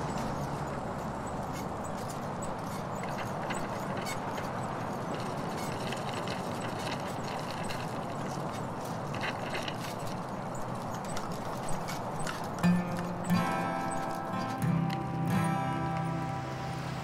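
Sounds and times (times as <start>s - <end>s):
passing traffic hiss: 12.4s - 17.0s.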